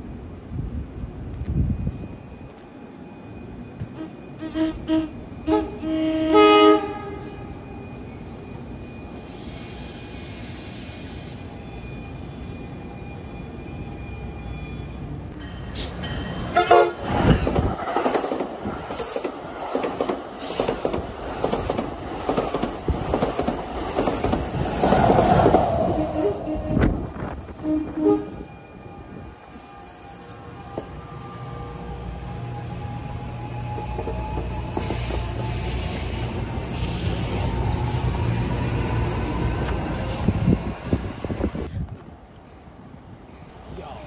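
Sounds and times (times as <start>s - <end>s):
train rumbling past: 0.0s - 44.0s
train horn: 4.0s - 7.6s, 16.5s - 17.2s, 25.9s - 32.9s
train wheels clattering on rails: 17.1s - 26.2s, 33.6s - 37.6s.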